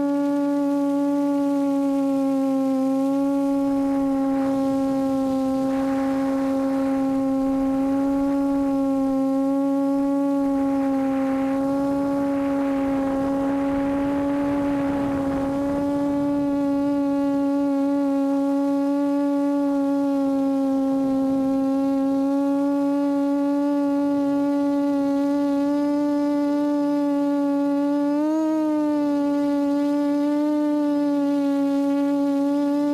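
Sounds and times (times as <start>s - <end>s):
quadcopter motors humming: 0.0s - 32.9s
broad rushing noise: 2.0s - 18.9s.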